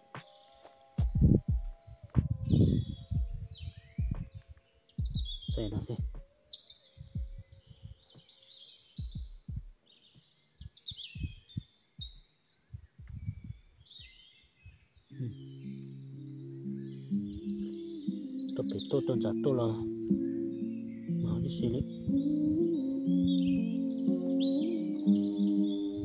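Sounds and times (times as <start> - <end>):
small birds chirping: 0.0 - 26.0
dull low thumps: 1.0 - 4.4, 5.0 - 6.3, 7.1 - 8.0, 9.0 - 9.8, 11.2 - 12.2, 12.8 - 14.2.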